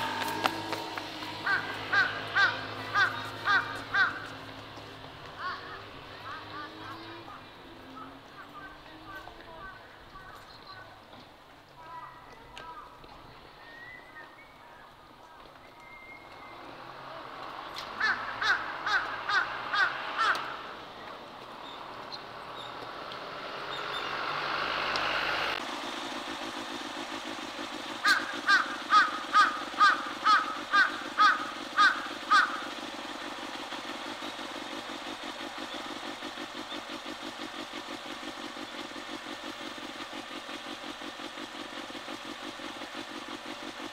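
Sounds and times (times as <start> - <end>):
crow cawing: 0.0 - 4.5, 18.0 - 20.7, 28.0 - 32.8
pulsing engine hum: 0.0 - 43.9.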